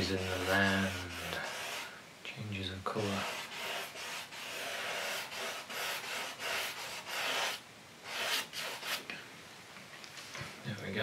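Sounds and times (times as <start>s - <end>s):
paintbrush rubbing on canvas: 0.0s - 1.9s, 2.9s - 9.0s.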